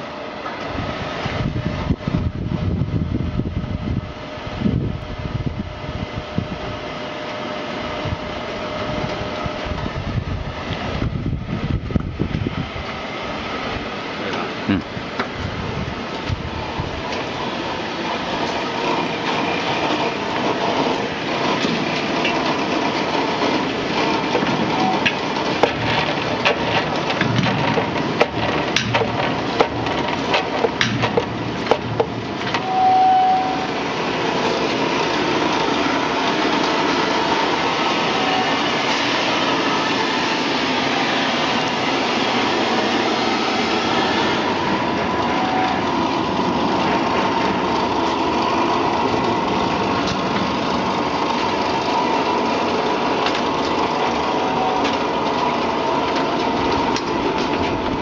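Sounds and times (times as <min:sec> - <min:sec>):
machine running steadily: 0:00.0 - 0:58.0
sharp metal knocks and clatter: 0:23.4 - 0:32.6
brief high tone: 0:32.6 - 0:33.8, 0:38.1 - 0:38.8, 0:45.0 - 0:45.9, 0:54.4 - 0:55.0.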